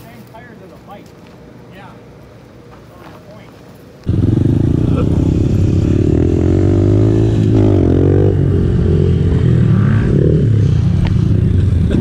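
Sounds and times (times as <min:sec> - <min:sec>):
motorbike engine revving: 0:04.1 - 0:12.0.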